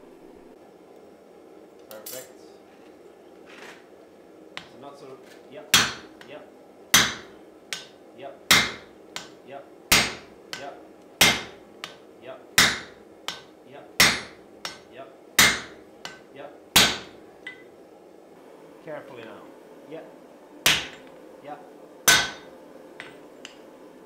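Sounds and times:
sledgehammer striking steel on anvil: 5.7 - 6.1, 7.0 - 12.0, 12.6 - 16.2, 16.8 - 17.7, 20.6 - 21.1, 22.1 - 23.6
light metallic clinks: 17.4 - 17.7.

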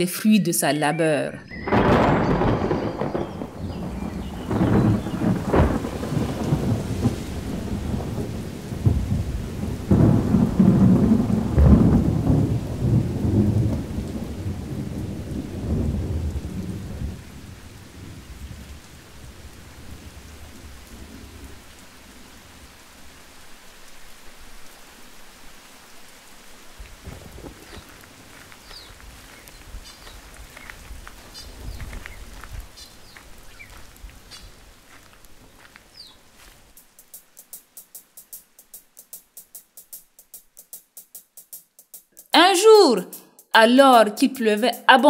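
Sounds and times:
rolling thunder: 1.6 - 21.6, 26.9 - 28.0
steady rain: 1.6 - 41.6.

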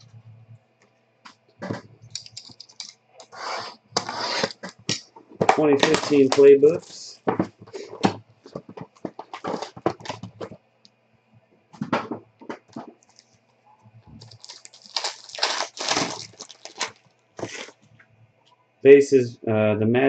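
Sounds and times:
plastic shrink-wrap crinkling: 5.7 - 7.2, 9.0 - 10.4, 14.2 - 17.8
foil pack crinkling and tearing: 5.8 - 7.1, 14.2 - 17.8.

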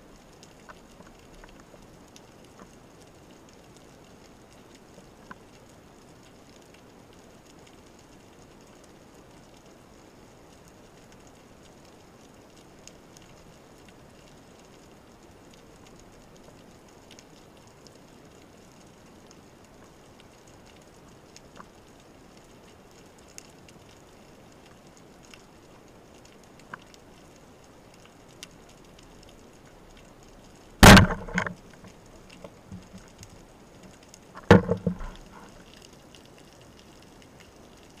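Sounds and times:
underwater ticks and crackles: 0.0 - 38.0
speargun firing underwater: 30.8 - 31.5, 34.4 - 35.3.

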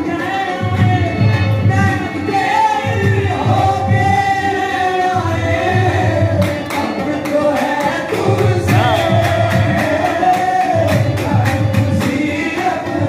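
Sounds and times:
harmonium: 0.0 - 13.0
lead singer and chorus singing: 0.0 - 13.0
steady drum beat: 0.7 - 13.0
rhythmic hand claps: 6.1 - 13.0.

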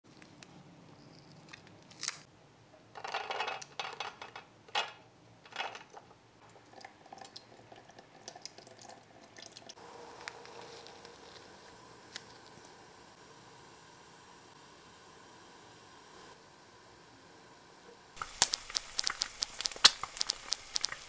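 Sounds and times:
plastic container crackling: 18.2 - 21.0.

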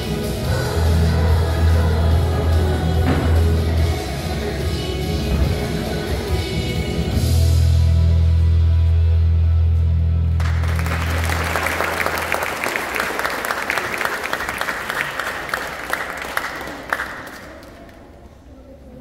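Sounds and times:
held chord of backing music: 0.0 - 17.4
audience clapping: 10.3 - 18.1.

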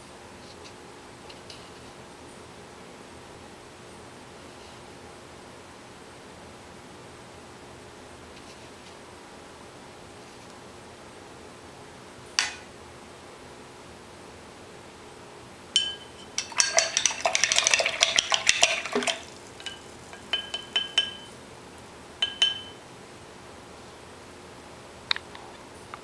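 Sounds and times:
paintbrush clinking glass jar: 15.8 - 21.4, 22.2 - 22.8.

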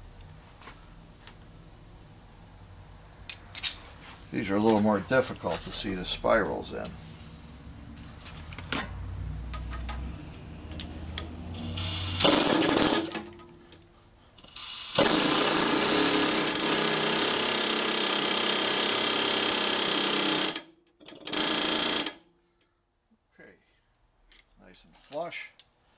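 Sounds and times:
pneumatic air hammer hammering: 11.7 - 13.3, 14.5 - 22.2.

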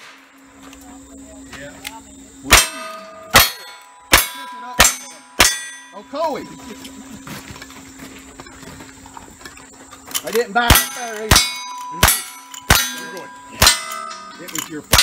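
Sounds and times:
steel target ringing: 2.5 - 6.5, 10.6 - 15.0.

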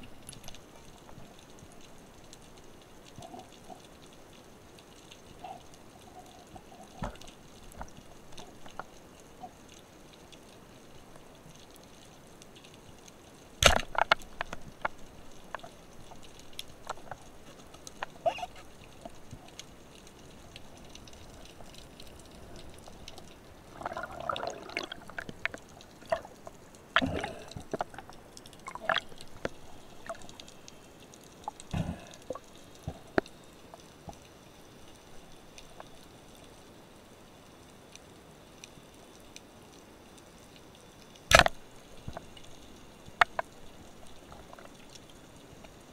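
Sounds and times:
underwater clicks and knocks: 6.5 - 9.6, 13.6 - 19.6, 20.6 - 30.5, 41.3 - 42.4, 43.1 - 44.7
bubbling gurgle: 13.6 - 19.6, 20.4 - 30.5, 31.4 - 34.2.

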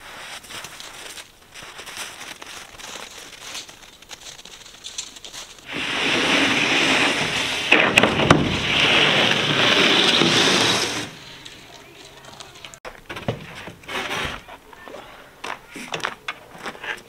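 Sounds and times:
panel scraping across floor: 5.7 - 11.8, 13.3 - 14.5.

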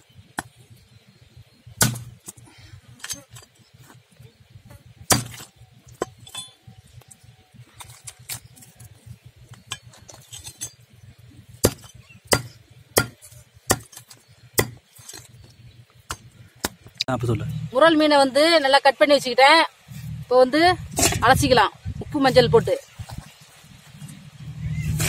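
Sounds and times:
blade chopping on wooden block: 1.8 - 2.2, 5.1 - 6.2, 11.6 - 14.8.

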